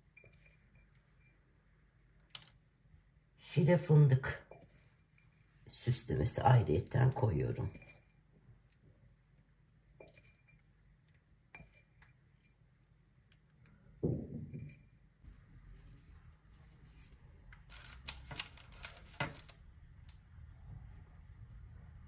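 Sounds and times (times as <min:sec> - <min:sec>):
knock on baking tray: 0:14.0 - 0:14.6
paper crinkling: 0:17.7 - 0:19.6.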